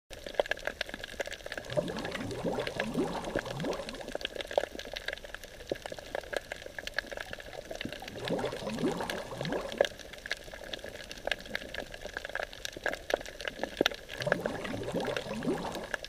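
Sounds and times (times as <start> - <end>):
crackling clicks: 0.1 - 16.0
underwater air bubbles: 0.1 - 16.0.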